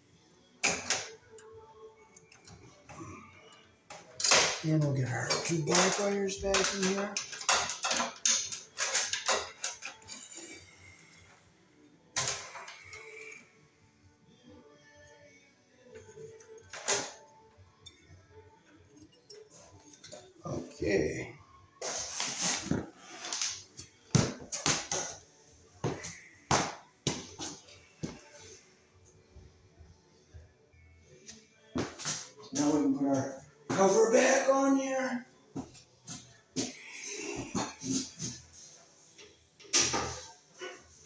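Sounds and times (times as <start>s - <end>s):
wires and wiring box rattling: 4.1s - 10.1s.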